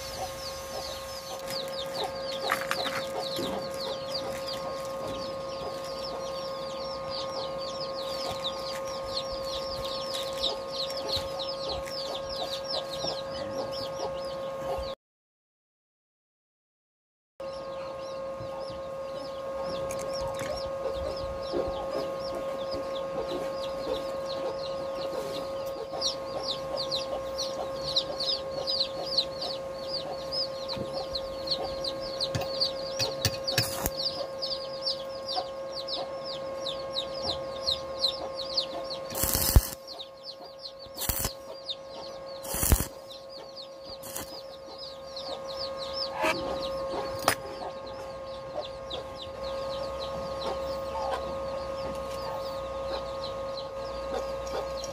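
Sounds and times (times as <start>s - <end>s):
chicks peeping: 0.0s - 15.0s, 17.4s - 54.9s
steady hum: 0.0s - 15.0s, 17.4s - 54.9s
knocks of metal tools: 32.3s - 33.9s.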